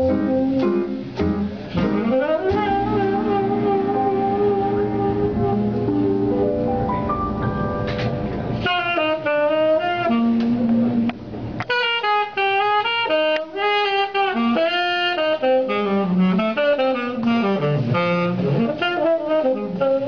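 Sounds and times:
sustained piano chords: 0.0 - 13.6
jazz band playing: 0.0 - 20.0
tenor saxophone melody: 0.0 - 20.0.

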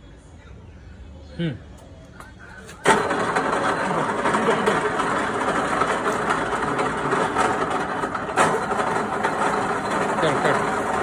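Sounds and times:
pillar drill running: 2.8 - 11.0.

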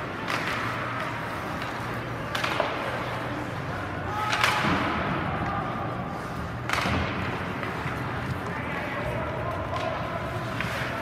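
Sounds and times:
sharp knocks of sticks and puck: 0.0 - 3.0, 4.2 - 5.5, 6.6 - 8.6.

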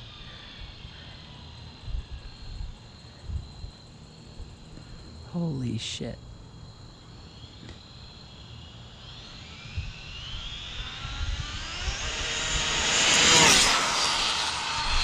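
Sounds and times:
rc car motor whining: 7.1 - 15.0.

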